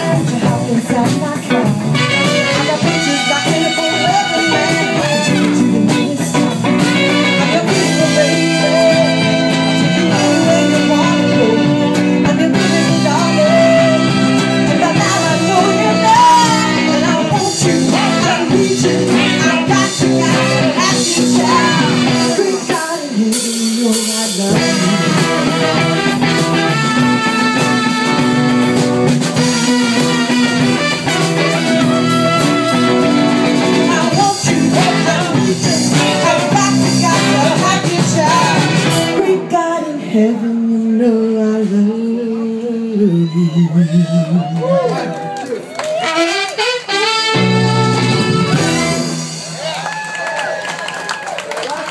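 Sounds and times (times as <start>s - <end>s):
woman singing: 0.0s - 28.3s, 29.4s - 44.4s
live band playing: 0.0s - 41.0s, 41.6s - 51.9s
saxophone: 1.6s - 23.1s, 24.5s - 39.2s, 43.0s - 49.8s
trumpet: 1.9s - 22.8s, 24.5s - 39.2s, 45.8s - 49.9s.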